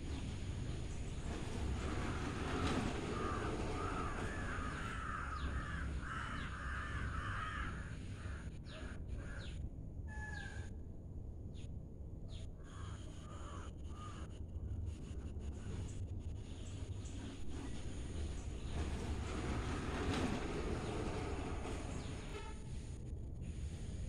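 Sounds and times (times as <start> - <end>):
low steady rumble: 0.0 - 24.0
crows cawing: 3.2 - 9.4, 12.6 - 14.3.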